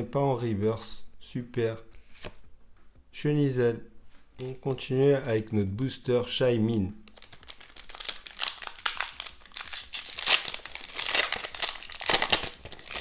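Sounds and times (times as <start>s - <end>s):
foil wrapper tearing and crinkling: 7.0s - 13.0s.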